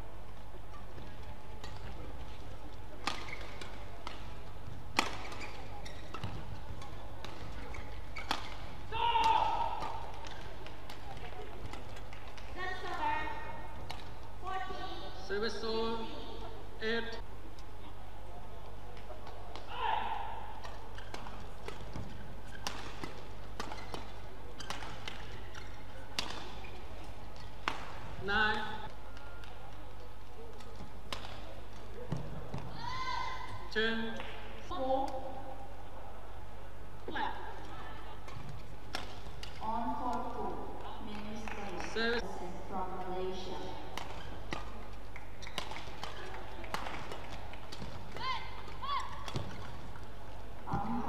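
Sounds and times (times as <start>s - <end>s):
badminton racket hitting shuttlecock: 2.9s - 13.2s, 19.5s - 29.6s, 30.6s - 32.6s, 38.2s - 39.6s, 43.8s - 50.2s.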